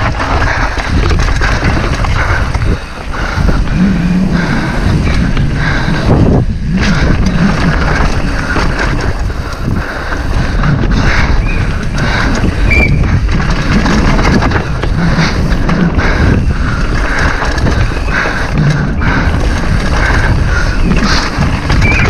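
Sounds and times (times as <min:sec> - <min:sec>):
bike clattering over rocks: 0:00.0 - 0:03.7, 0:04.8 - 0:22.0
wind on microphone: 0:00.0 - 0:22.0.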